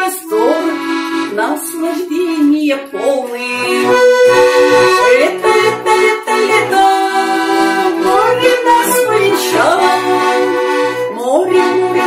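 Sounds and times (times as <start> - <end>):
button accordion playing: 0.0 - 12.0.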